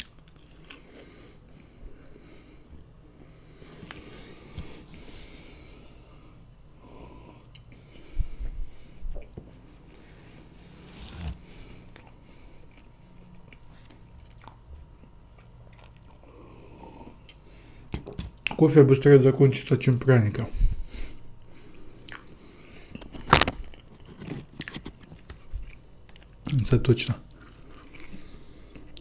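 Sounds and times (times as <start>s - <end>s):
chewing soft cake: 0.0s - 2.3s, 8.7s - 17.6s, 21.4s - 29.0s.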